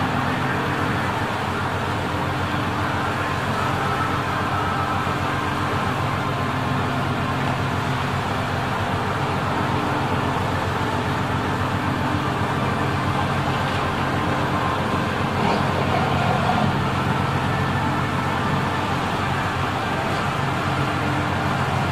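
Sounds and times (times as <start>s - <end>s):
low engine hum: 0.0s - 21.9s.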